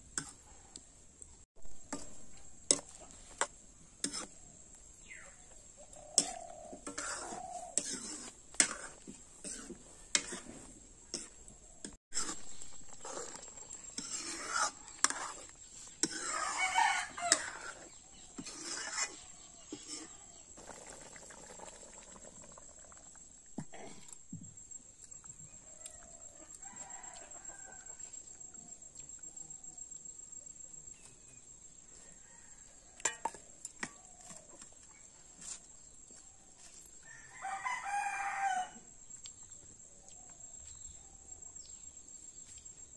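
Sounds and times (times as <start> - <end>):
rooster crowing: 16.2 - 17.7, 37.0 - 38.9.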